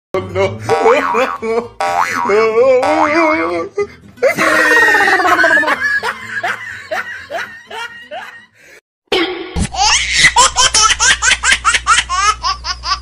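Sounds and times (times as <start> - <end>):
laughter sound effects: 4.2 - 13.0.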